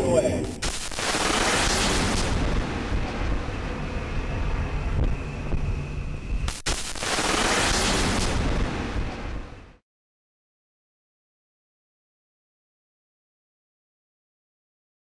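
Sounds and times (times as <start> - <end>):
low rumble: 1.9 - 6.6, 7.9 - 9.8.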